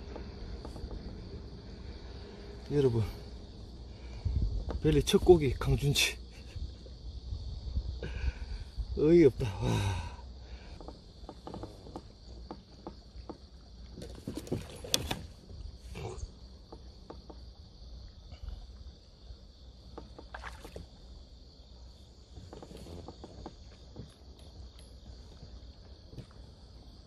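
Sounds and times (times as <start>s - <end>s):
knocks and clatter of boat gear: 0.0s - 1.5s, 4.2s - 6.9s, 10.0s - 18.6s, 19.3s - 27.0s
high insect drone: 0.0s - 27.0s.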